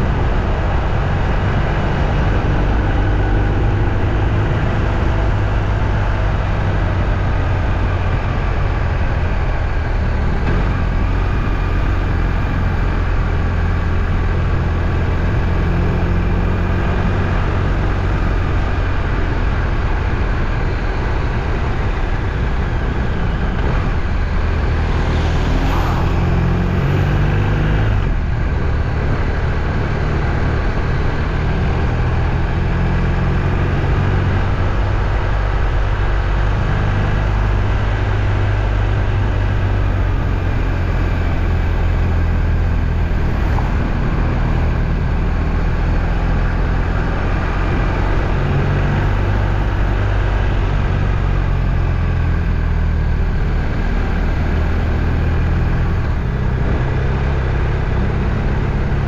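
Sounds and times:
road noise: 0.0 - 59.0
vehicle engine rumble: 0.0 - 59.0.

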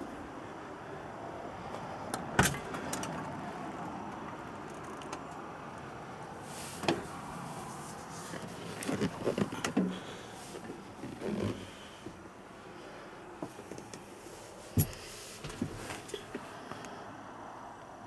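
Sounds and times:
steady background hum: 0.0 - 18.0
cab door clicks and knocks: 14.8 - 15.9.

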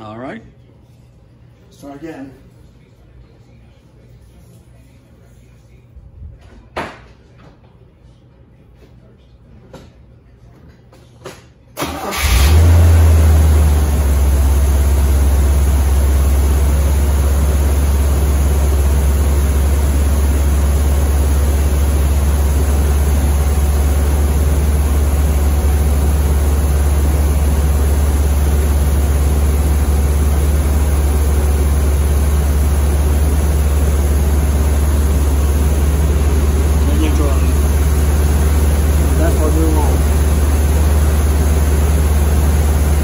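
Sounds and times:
car engine starting and idling: 11.8 - 43.0.

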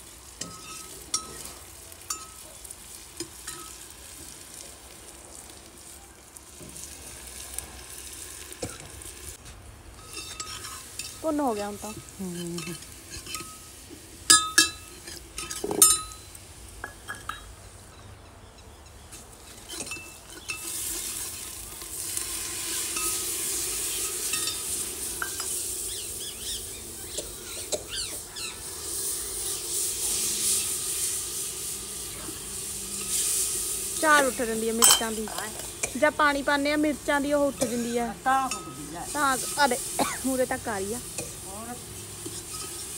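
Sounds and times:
vegetables sizzling in oil: 0.0 - 42.9
spoon clinking against pot: 10.0 - 11.2, 14.3 - 17.5, 34.8 - 36.0, 42.2 - 42.8.

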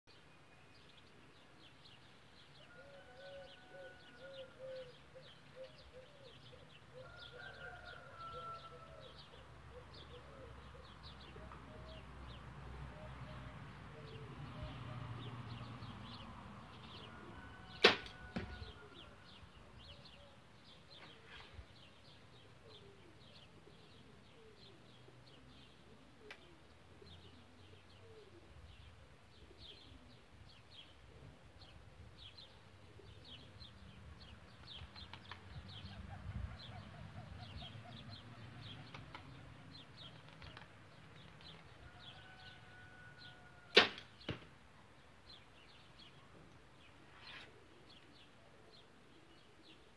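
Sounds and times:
birds chirping: 32.2 - 49.9.

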